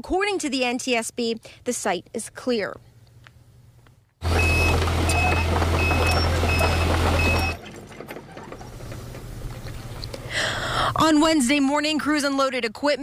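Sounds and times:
excavator travel alarm beeping: 4.2s - 8.3s
low engine hum: 4.2s - 10.4s.

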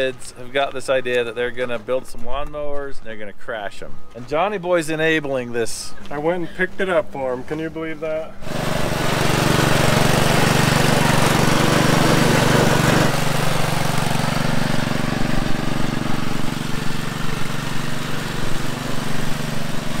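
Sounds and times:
riding lawn mower engine: 8.2s - 20.0s.

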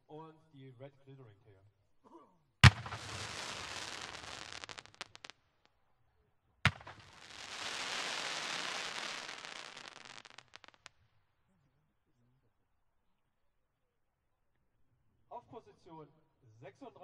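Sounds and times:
firework crackling: 2.6s - 5.3s, 6.7s - 10.9s
firework pops: 2.6s - 5.3s, 6.7s - 10.9s
firework sharp bang: 2.6s - 5.3s, 6.7s - 10.7s.

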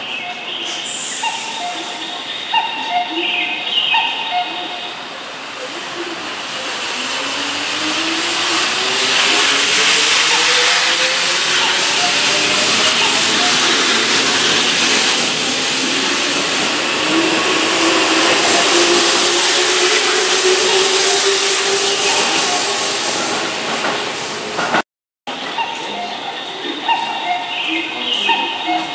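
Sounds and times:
wheels rumbling on rail: 0.0s - 28.9s
electric train motors whining: 5.7s - 24.8s.

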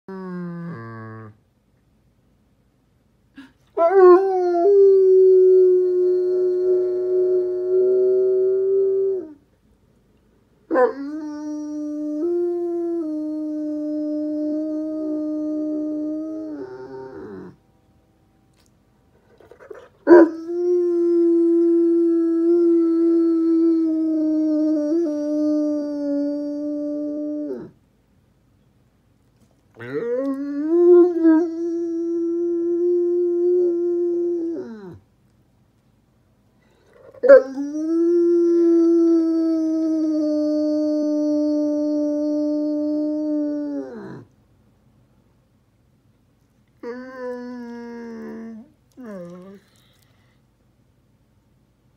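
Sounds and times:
dog howling: 19.3s - 27.8s.

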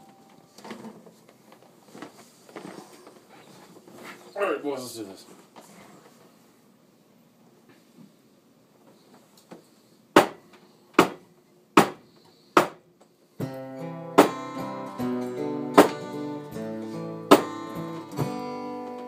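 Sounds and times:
acoustic guitar strummed chords: 0.0s - 0.9s, 13.4s - 19.0s
percussive hits on guitar: 13.4s - 16.4s, 17.2s - 18.6s.

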